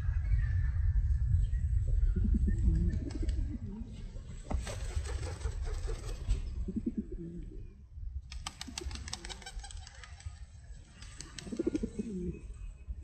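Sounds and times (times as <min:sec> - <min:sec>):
steady low rumble: 0:00.0 - 0:08.4
pigeons cooing: 0:11.0 - 0:12.5.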